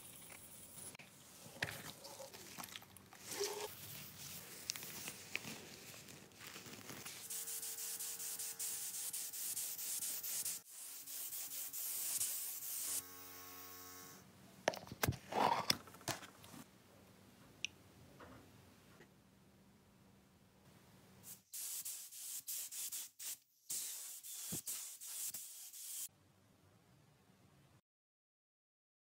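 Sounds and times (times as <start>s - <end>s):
spray paint hissing: 7.1s - 13.0s, 21.3s - 26.1s.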